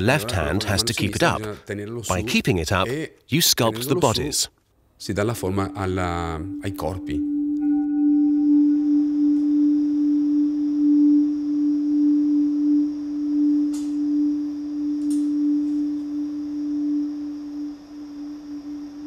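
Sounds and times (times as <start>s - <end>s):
faint high hiss: 0.0s - 19.0s
steady pure tone drone: 5.2s - 19.0s.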